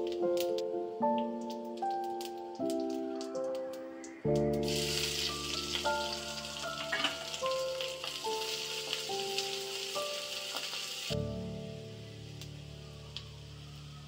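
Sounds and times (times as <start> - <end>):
gentle background melody: 0.0 - 14.0
oil sizzling in a pan: 4.6 - 14.0.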